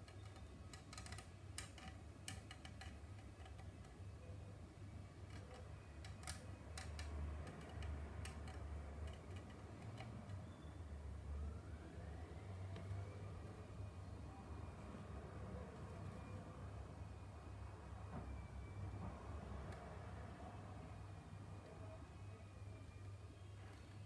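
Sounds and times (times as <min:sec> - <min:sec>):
hand tools clicking on plastic: 0:00.0 - 0:04.0, 0:05.2 - 0:10.4
low steady hum: 0:00.0 - 0:24.0.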